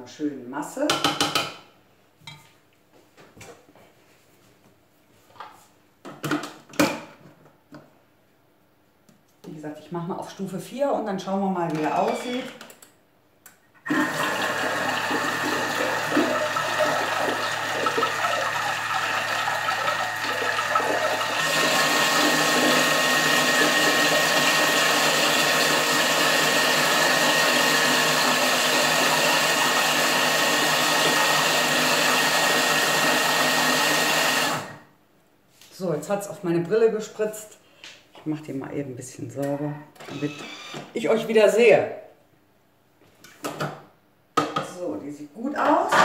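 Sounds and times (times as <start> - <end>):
food processor motor churning liquid: 13.8 - 34.8.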